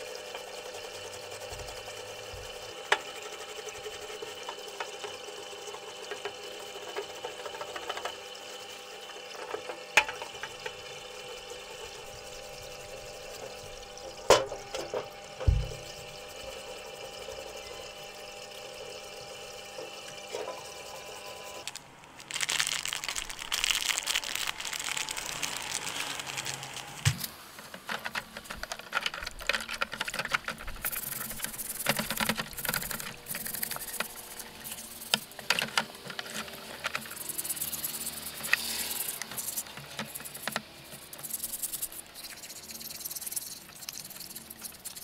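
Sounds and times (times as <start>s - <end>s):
pump humming: 0.0s - 45.0s
brush scrubbing metal: 27.6s - 45.0s
plastic brush scrubbing under water: 27.6s - 45.0s.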